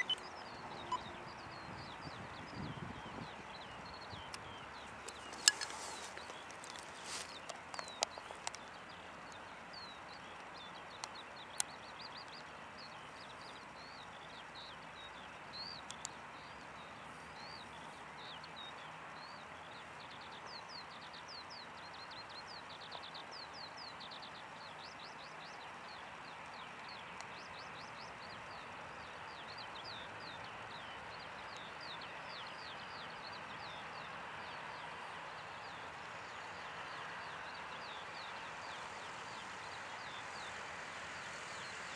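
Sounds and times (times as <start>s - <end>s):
small bird chirping: 0.0s - 8.7s.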